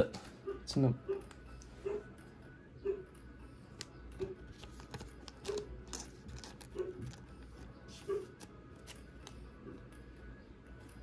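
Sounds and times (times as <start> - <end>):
dog barking from another room: 0.4 - 2.1.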